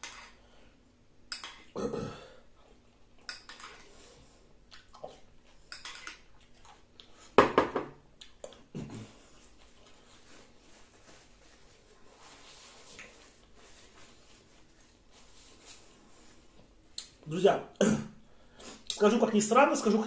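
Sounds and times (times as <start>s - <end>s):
chewing: 4.6s - 7.3s
bowl knocking on wooden table: 7.4s - 8.0s.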